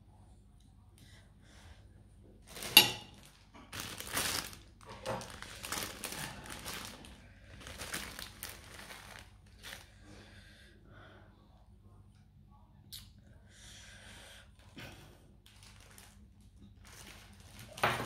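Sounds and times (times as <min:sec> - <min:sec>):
plastic bag crinkling: 0:02.5 - 0:10.0, 0:15.4 - 0:18.0.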